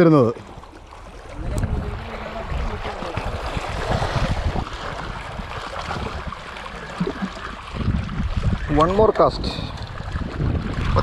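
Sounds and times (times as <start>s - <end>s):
waves washing against rocks: 0.0s - 11.0s
wind buffeting microphone: 0.5s - 11.0s.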